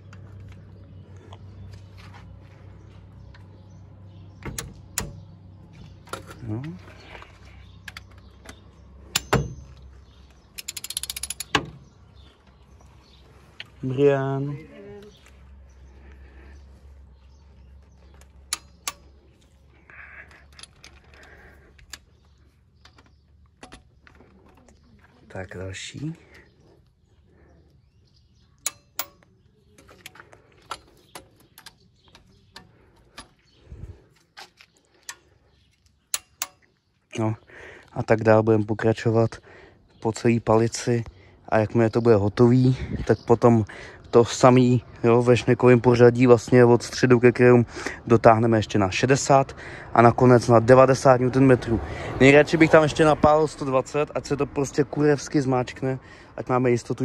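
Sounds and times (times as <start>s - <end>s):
ratchet clicks: 10.5s - 11.6s
torque wrench click: 10.6s - 11.6s
wrench knocking on bolt: 10.6s - 11.7s.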